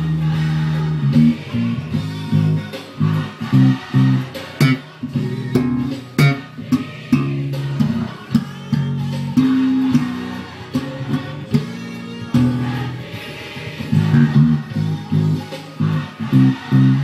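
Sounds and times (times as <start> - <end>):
gospel music: 0.0 - 17.0
plucked electric bass: 0.0 - 17.0.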